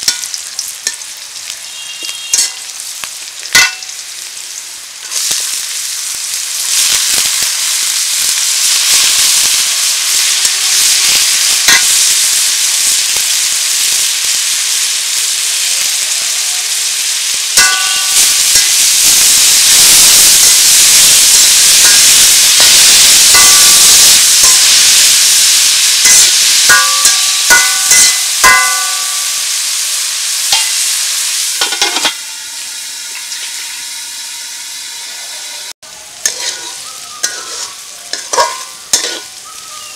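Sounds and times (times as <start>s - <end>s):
metal spatula clanking on pan: 0.0s - 1.0s, 2.0s - 2.7s, 3.5s - 4.0s, 17.6s - 18.8s, 26.0s - 29.2s, 31.6s - 32.2s, 36.2s - 39.3s
potato sizzling in hot oil: 0.0s - 39.9s.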